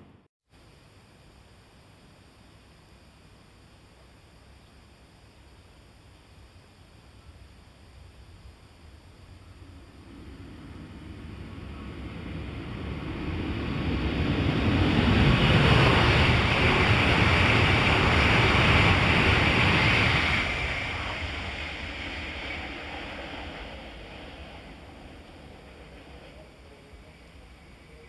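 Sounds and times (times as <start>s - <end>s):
high-speed train rushing past: 9.3s - 28.0s.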